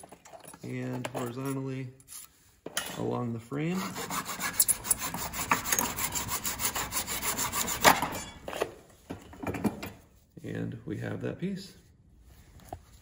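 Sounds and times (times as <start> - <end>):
hacksaw sawing plastic: 3.7 - 8.2.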